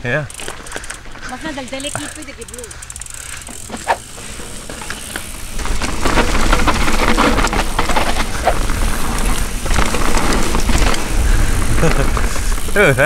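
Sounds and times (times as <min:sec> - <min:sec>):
bike tyres and frame chattering: 0:00.0 - 0:13.0.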